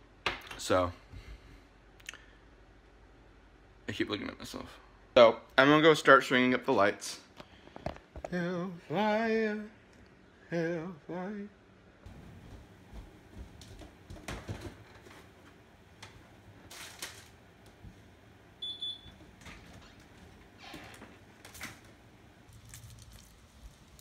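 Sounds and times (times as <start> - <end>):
front door opening: 12.1 - 22.2
rustles: 22.5 - 24.0.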